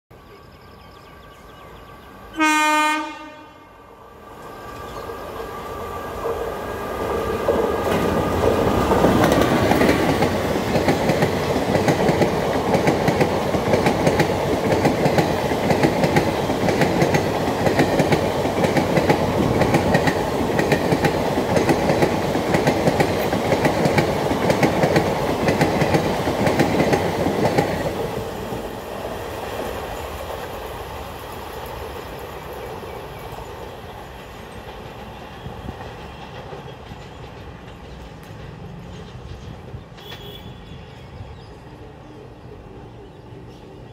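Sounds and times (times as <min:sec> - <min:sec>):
train horn: 0:02.3 - 0:04.0, 0:40.0 - 0:40.9
train wheels clattering over rails: 0:06.0 - 0:40.6.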